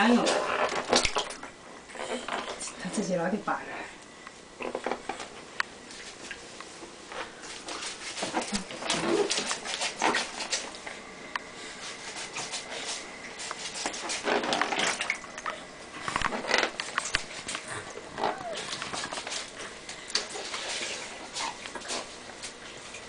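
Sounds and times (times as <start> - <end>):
water splashing in a tub: 0.0 - 1.5, 7.5 - 11.0, 12.0 - 23.0.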